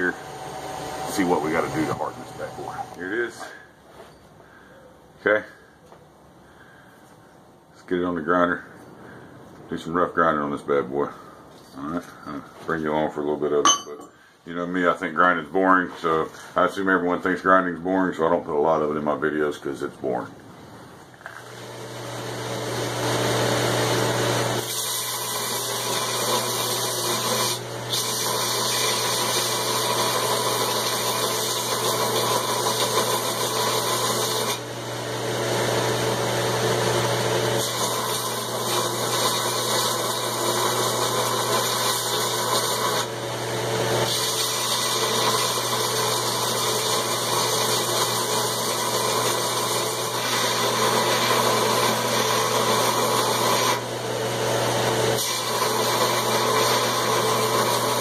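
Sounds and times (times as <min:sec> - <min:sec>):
belt grinder motor hum: 0:00.0 - 0:03.1, 0:21.4 - 0:58.0
steel grinding against belt: 0:24.6 - 0:34.6, 0:37.6 - 0:43.1, 0:44.0 - 0:53.9, 0:55.1 - 0:58.0.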